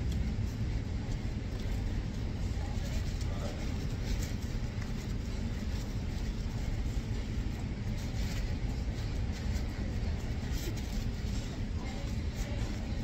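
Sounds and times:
low room rumble: 0:00.0 - 0:13.0.

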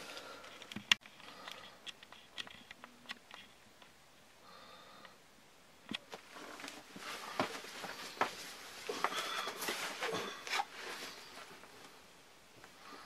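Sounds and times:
rustling and scraping on wood: 0:06.1 - 0:12.0.

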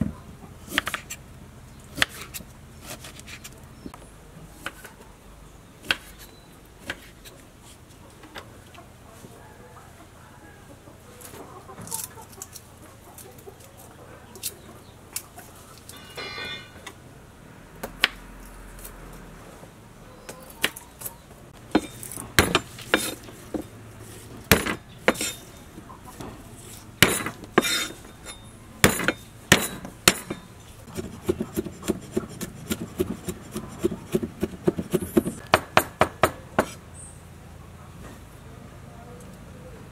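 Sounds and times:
cleaver chopping rapidly: 0:21.7 - 0:23.2, 0:24.5 - 0:25.3, 0:27.0 - 0:27.8, 0:28.8 - 0:36.8.

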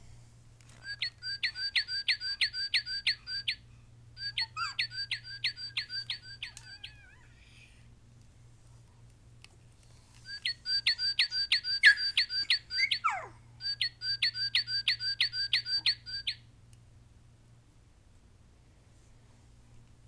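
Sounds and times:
toy bird whistled song: 0:00.8 - 0:03.6, 0:04.2 - 0:07.1, 0:10.2 - 0:16.4.

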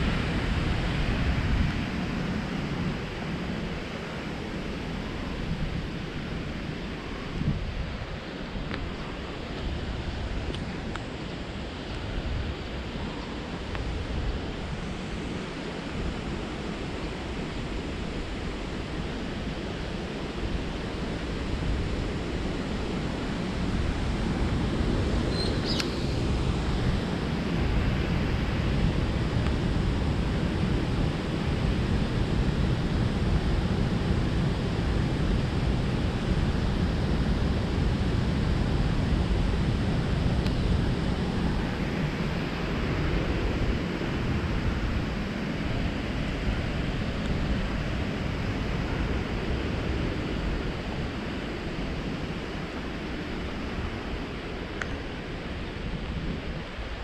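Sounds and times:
wind rushing over microphone: 0:00.0 - 0:57.0.

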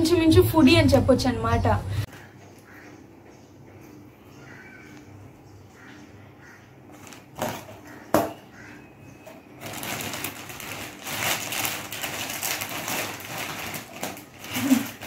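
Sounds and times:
plastic snack packet crinkling: 0:09.3 - 0:15.0.

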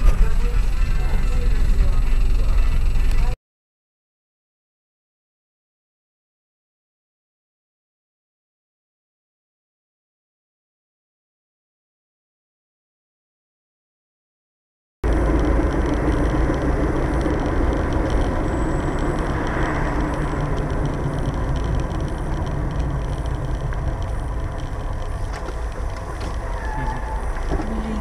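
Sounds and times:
car engine and road noise: 0:00.0 - 0:03.4, 0:15.0 - 0:28.0.

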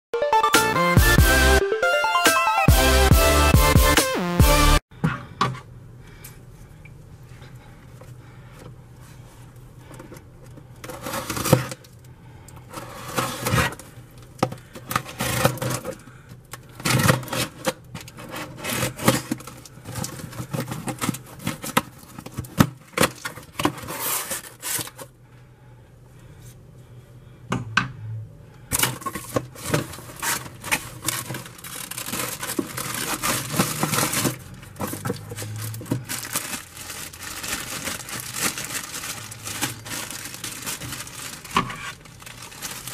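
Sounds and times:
packing tape scraping and tearing: 0:10.8 - 0:11.9, 0:12.7 - 0:13.9, 0:14.9 - 0:16.0, 0:16.7 - 0:25.1, 0:28.7 - 0:42.9
plastic packaging rustling: 0:10.8 - 0:12.0, 0:14.6 - 0:16.0, 0:16.6 - 0:25.1, 0:28.7 - 0:42.9.

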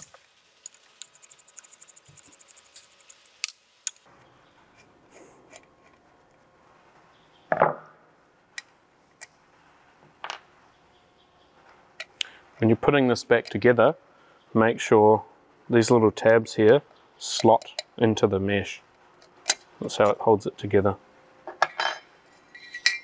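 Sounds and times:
metal parts clicking and scraping: 0:21.5 - 0:23.0.

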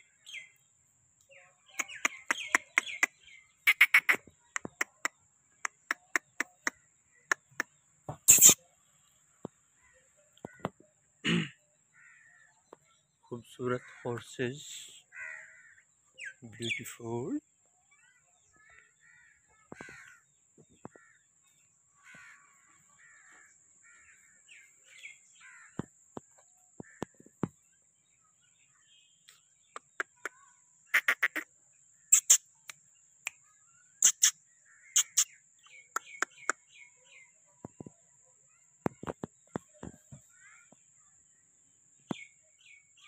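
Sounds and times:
crows cawing: 0:11.9 - 0:12.5, 0:15.1 - 0:15.9, 0:18.6 - 0:21.2, 0:22.0 - 0:24.5, 0:25.4 - 0:25.9.

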